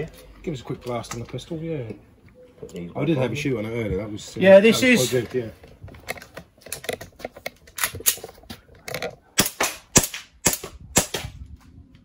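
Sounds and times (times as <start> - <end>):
airsoft pistol shots: 9.4 - 11.4.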